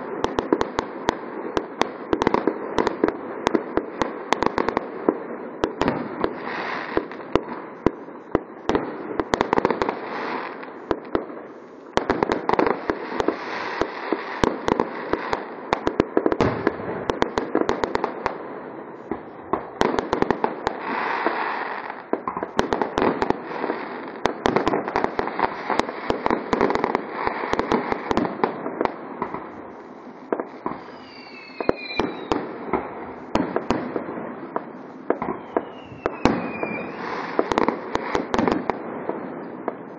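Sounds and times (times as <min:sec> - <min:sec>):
fireworks bangs and crackling: 0:00.0 - 0:39.9
fireworks whistles falling in pitch: 0:30.3 - 0:33.8, 0:35.1 - 0:38.5.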